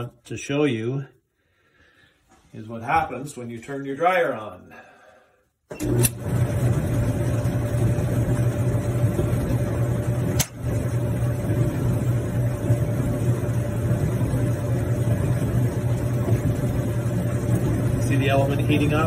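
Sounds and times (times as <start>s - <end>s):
dryer humming and rumbling: 5.7s - 19.0s.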